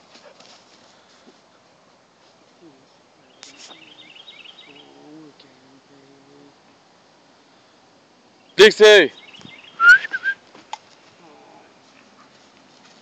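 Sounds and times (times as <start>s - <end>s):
low steady bird calls: 2.6s - 12.4s
high bird chirps: 8.4s - 10.3s.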